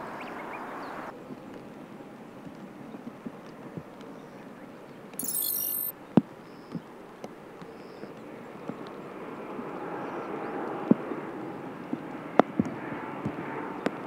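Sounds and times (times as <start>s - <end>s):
short high-pitched chirp: 5.2s - 5.9s.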